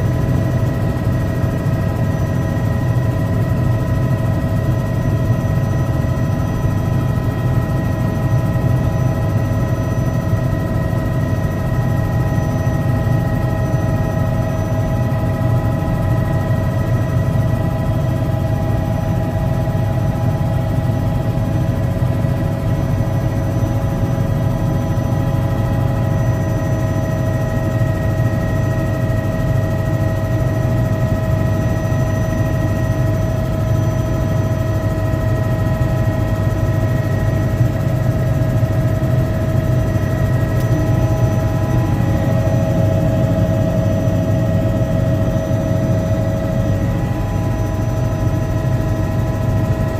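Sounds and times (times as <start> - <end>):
helicopter rotor and engine drone: 0.0 - 49.9
steady whining tones: 27.0 - 49.9.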